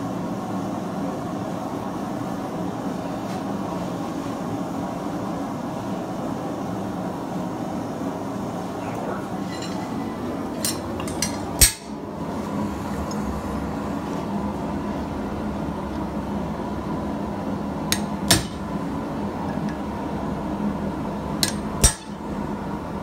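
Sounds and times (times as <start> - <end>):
propane forge running: 0.0 - 23.0
metal clanks on anvil: 9.4 - 10.0, 10.6 - 12.0, 18.0 - 18.6, 21.4 - 22.2.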